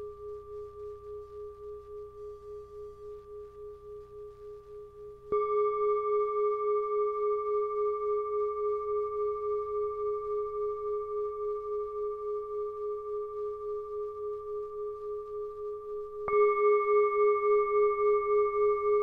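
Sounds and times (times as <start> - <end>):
singing bowl ringing: 16.2 - 19.0.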